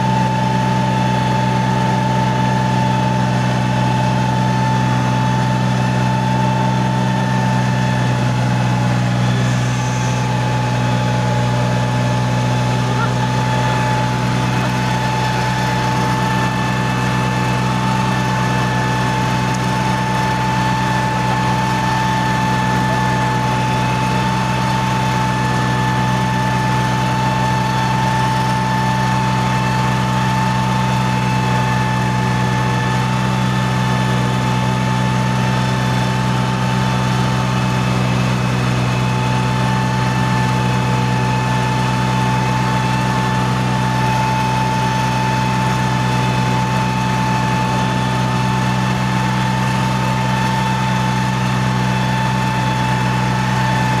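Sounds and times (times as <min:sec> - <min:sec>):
tractor diesel engine running: 0:00.0 - 0:54.0
steady whine: 0:03.8 - 0:33.0.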